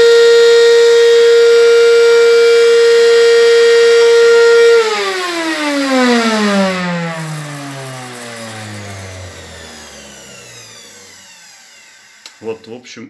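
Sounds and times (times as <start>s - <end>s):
motor spinning down whine: 0.0s - 12.9s
vacuum cleaner motor humming: 0.0s - 13.0s.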